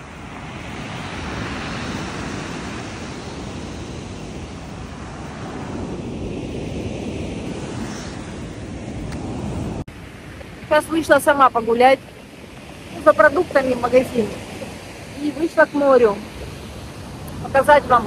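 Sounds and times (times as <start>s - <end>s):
waves breaking on shore: 0.0s - 18.0s
wind on microphone: 0.0s - 18.0s.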